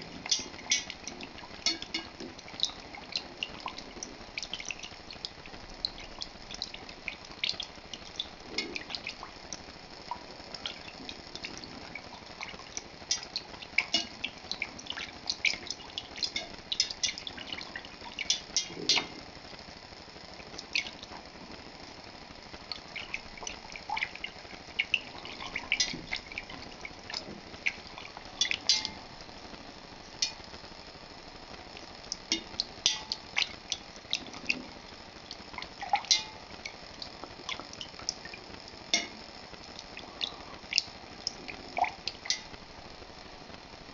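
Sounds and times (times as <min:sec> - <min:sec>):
liquid sloshing in a pot: 0:00.1 - 0:19.2, 0:22.8 - 0:29.1, 0:35.4 - 0:38.2
metal utensil clinking on pot: 0:28.6 - 0:29.0.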